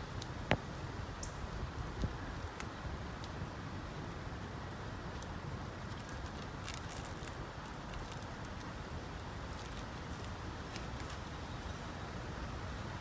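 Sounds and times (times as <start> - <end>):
chipmunk rummaging in nuts: 5.9 - 8.8.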